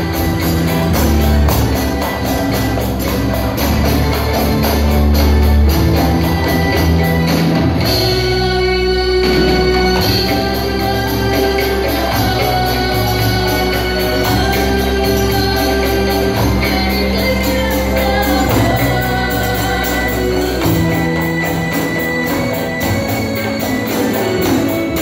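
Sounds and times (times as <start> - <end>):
frame drums with jingles: 0.0 - 8.5, 9.2 - 25.0
sustained bass notes: 0.0 - 25.0
children singing through microphones: 6.1 - 25.0.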